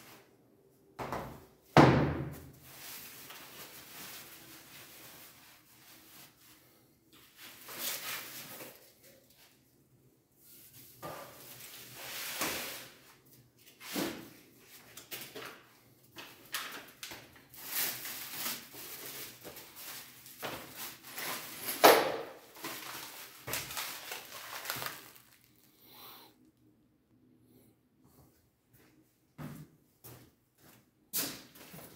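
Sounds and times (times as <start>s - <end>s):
plastic film rustling and crinkling: 2.6s - 6.6s, 16.2s - 21.8s, 22.4s - 25.7s.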